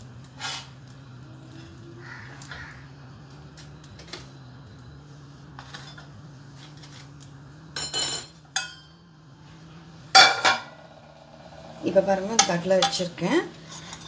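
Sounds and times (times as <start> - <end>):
low steady hum: 0.0 - 14.0
metal kitchenware clattering: 7.8 - 8.9, 10.2 - 10.8
ringing metal clink: 7.8 - 8.9.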